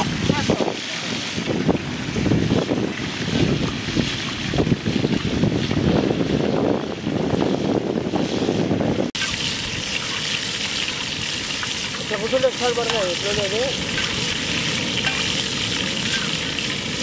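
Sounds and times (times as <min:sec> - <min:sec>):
wind buffeting microphone: 0:00.0 - 0:09.9
sea wash: 0:09.2 - 0:17.0.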